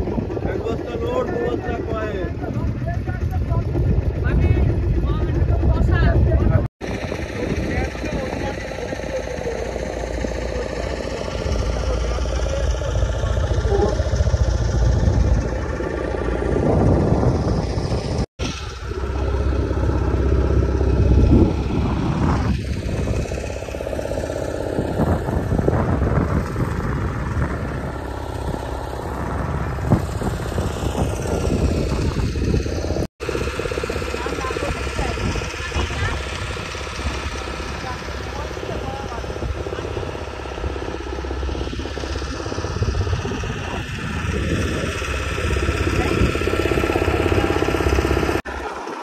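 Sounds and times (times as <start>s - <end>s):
boat engine running: 0.0s - 49.0s.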